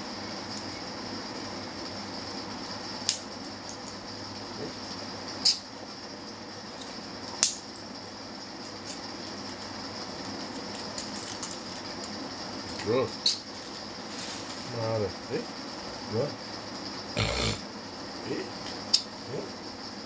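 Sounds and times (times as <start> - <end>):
steady background hiss: 12.8 - 17.6.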